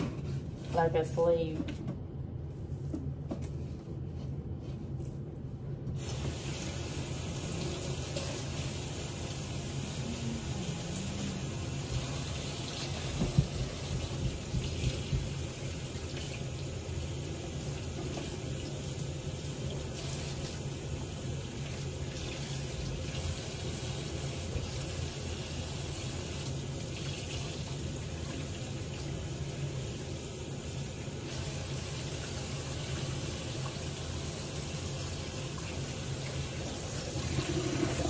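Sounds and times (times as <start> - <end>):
faucet running into metal sink: 31.2 - 38.0.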